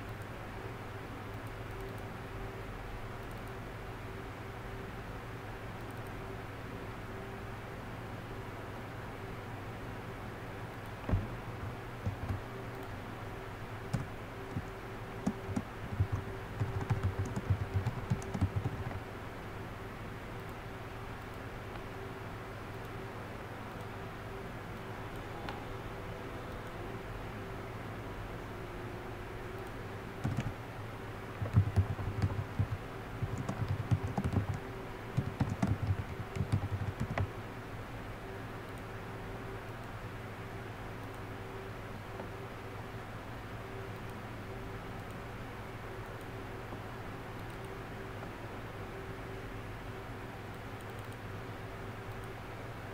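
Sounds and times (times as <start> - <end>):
steady low hum: 0.0 - 52.9
computer keyboard typing: 11.1 - 12.9, 13.9 - 19.0, 30.2 - 30.6, 31.3 - 37.3.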